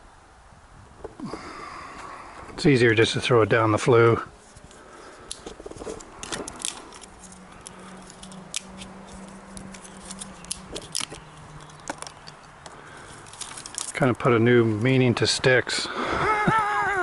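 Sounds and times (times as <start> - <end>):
kindling fire crackling: 1.1 - 14.1.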